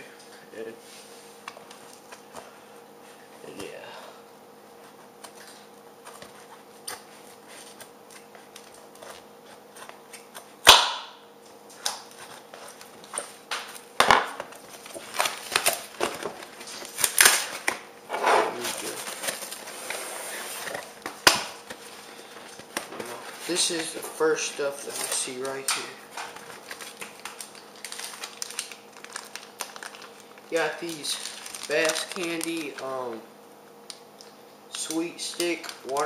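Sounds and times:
cardboard and tape scraping: 0:14.8 - 0:20.9.

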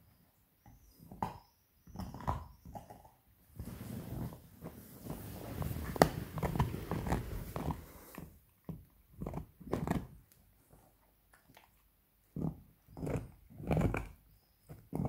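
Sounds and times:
puppy gnawing a bone: 0:00.6 - 0:03.2, 0:05.9 - 0:15.0.

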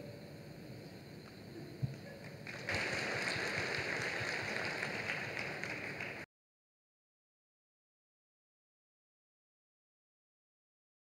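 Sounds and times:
audience applauding: 0:02.2 - 0:06.3.

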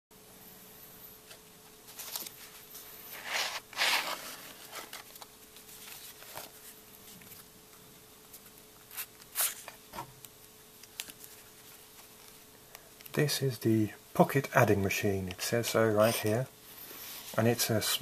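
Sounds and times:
faint steady hum: 0:00.1 - 0:18.0.

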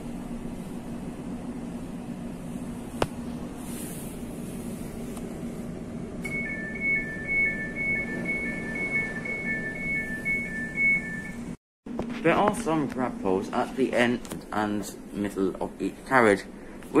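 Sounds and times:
low hum inside train carriage: 0:00.0 - 0:17.0
two-tone warning beeping: 0:06.2 - 0:11.6.

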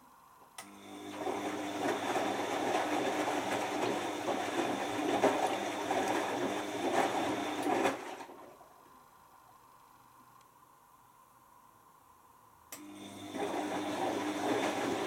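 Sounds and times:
washing machine motor whine: 0:00.6 - 0:08.3, 0:12.8 - 0:15.0
water sloshing in drum: 0:01.8 - 0:08.8.

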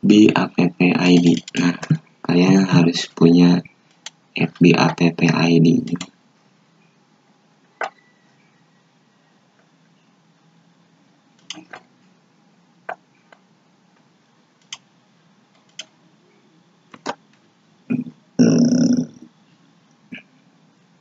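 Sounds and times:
person making throaty sound: 0:00.0 - 0:03.6, 0:04.4 - 0:06.0, 0:17.9 - 0:19.3
computer mouse clicks: 0:14.6 - 0:14.9, 0:15.6 - 0:16.0.

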